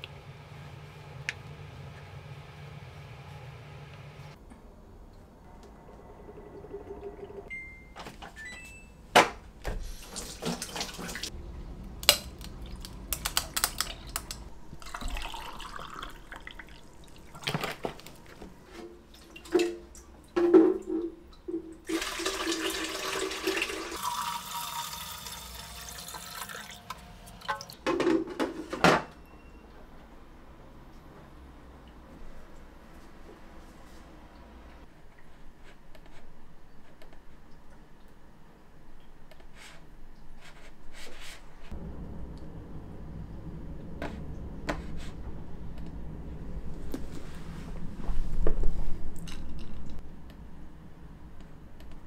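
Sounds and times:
water pouring and splashing: 9.8s - 11.4s, 12.3s - 18.1s, 21.7s - 27.8s.

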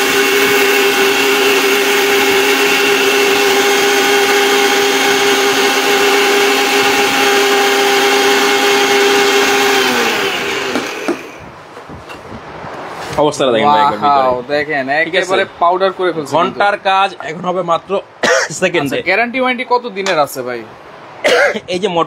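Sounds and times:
mixer grinder motor whine: 0.0s - 11.5s.

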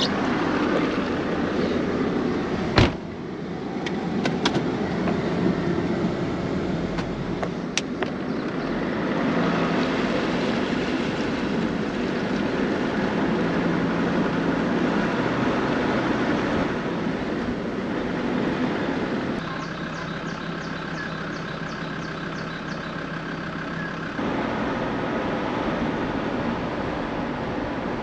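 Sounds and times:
rushing water: 0.0s - 2.7s, 8.5s - 19.4s, 24.2s - 28.0s
vehicle engine idling: 0.0s - 9.0s, 16.7s - 27.7s
steady rain: 9.2s - 19.4s.

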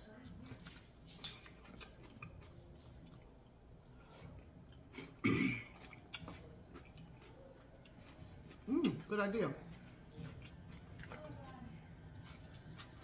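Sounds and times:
person clearing throat: 5.1s - 5.8s.

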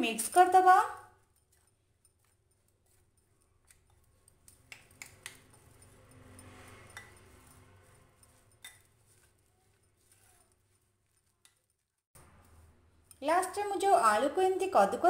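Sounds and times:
metal spoon scraping glass bowl: 0.0s - 15.0s.

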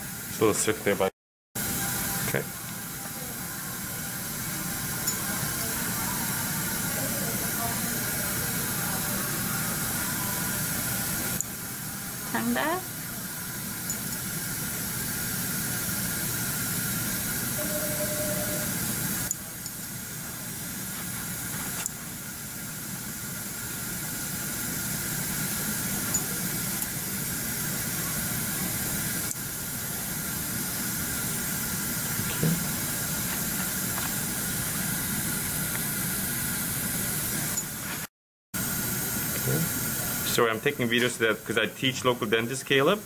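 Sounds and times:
faint steady tone: 17.6s - 18.8s.

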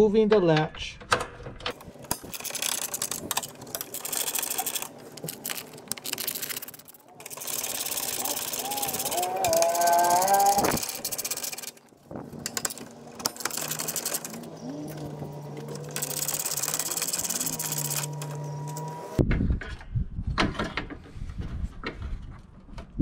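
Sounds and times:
metal parts clanking: 1.1s - 19.0s.

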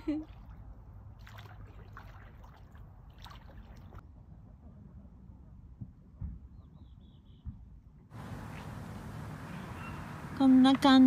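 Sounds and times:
paddle splashing in water: 1.2s - 4.0s
low steady rumble: 8.1s - 11.0s.

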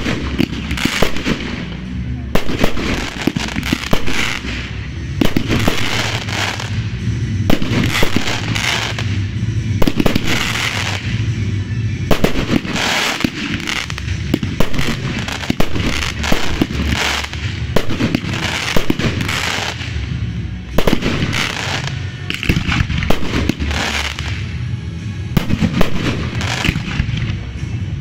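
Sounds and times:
fireworks bursting: 0.0s - 28.0s.

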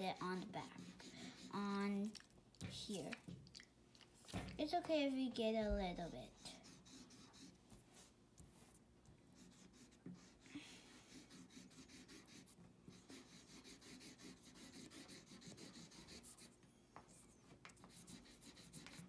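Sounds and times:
marker scribbling on paper: 0.0s - 2.0s, 6.0s - 8.1s, 9.4s - 16.6s, 17.7s - 19.0s.

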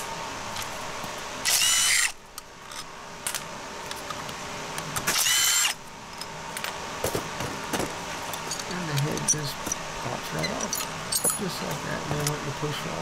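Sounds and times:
power tool motor whine: 1.4s - 2.2s, 5.0s - 5.8s.

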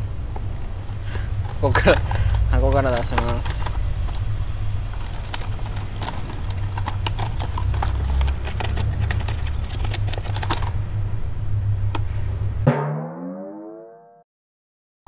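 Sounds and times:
plastic packaging crackling: 0.4s - 10.8s.

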